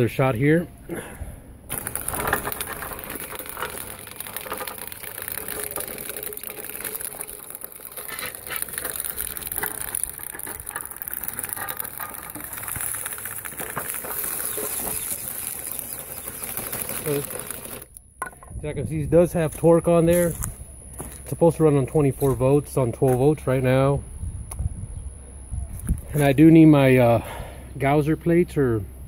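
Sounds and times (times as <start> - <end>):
tracked loader electric motors: 1.6 - 18.4.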